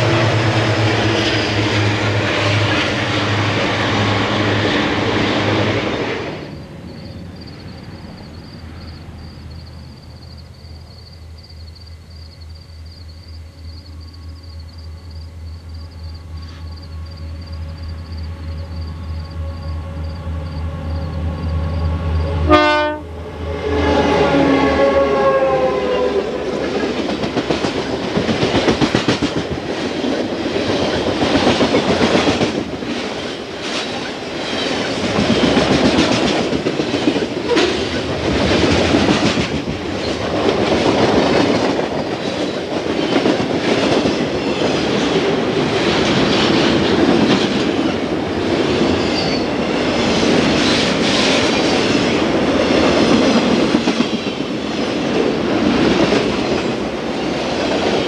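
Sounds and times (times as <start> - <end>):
train horn blast: 0.0 - 4.9, 22.2 - 26.4
diesel locomotives rumbling: 0.0 - 12.4, 13.3 - 58.0
train wheels clicking over rail joints: 26.6 - 58.0.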